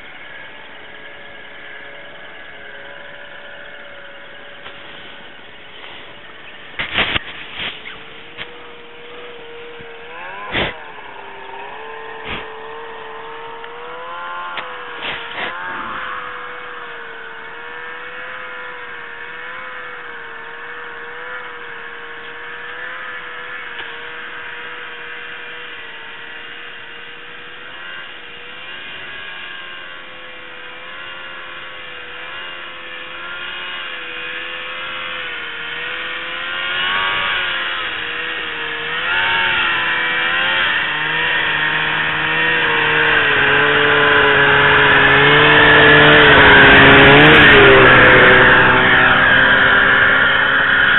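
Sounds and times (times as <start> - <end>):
snowmobile engine running: 0.0 - 50.9.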